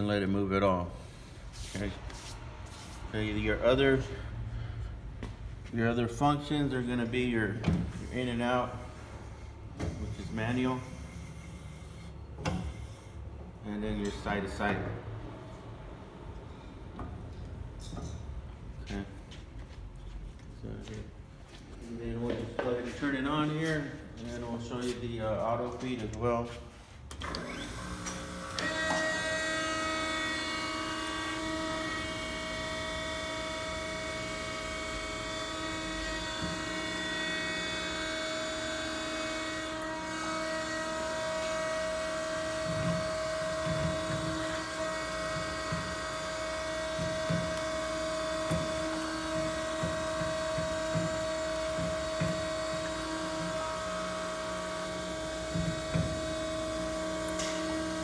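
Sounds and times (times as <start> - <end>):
surface grinder humming and whining: 27.2 - 58.0.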